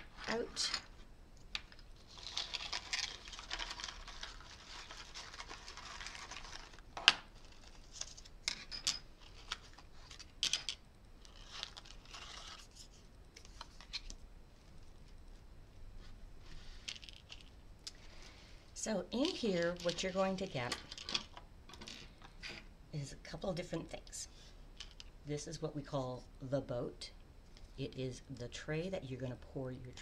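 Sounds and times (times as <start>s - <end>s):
plastic packets rustling: 1.6s - 8.4s.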